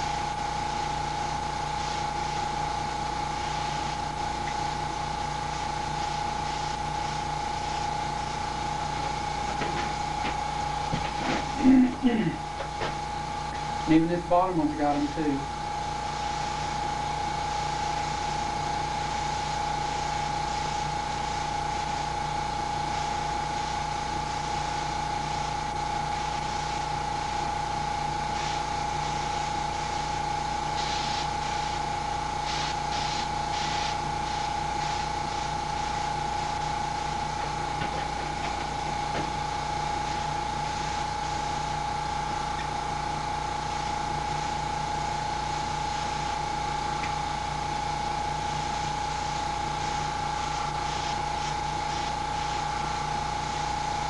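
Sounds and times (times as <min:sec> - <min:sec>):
air compressor running: 0:00.0 - 0:54.0
air hissing: 0:30.6 - 0:36.6, 0:49.7 - 0:53.5.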